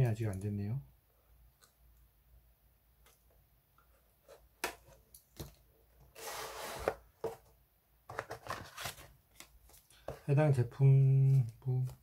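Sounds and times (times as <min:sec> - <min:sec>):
knife scraping cardboard: 0:06.1 - 0:07.0
cardboard rustling: 0:08.1 - 0:10.3
paper and cardboard handling: 0:08.1 - 0:10.3.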